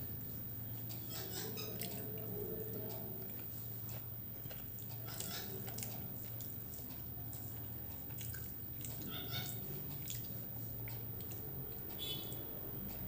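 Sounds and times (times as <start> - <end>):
steady low hum: 0.0 - 13.0
person chewing: 0.8 - 12.1
wet mouth clicks: 4.8 - 12.0.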